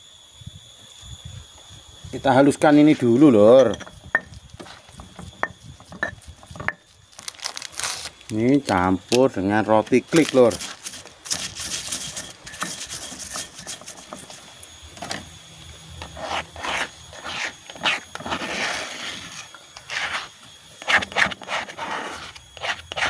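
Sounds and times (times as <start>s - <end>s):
stone pestle grinding in mortar: 10.2s - 14.4s, 16.0s - 23.0s.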